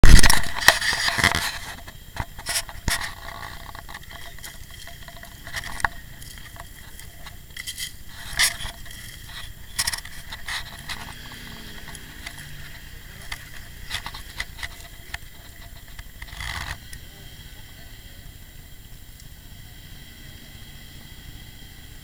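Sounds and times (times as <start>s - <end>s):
camera handling noise: 0.1s - 16.8s.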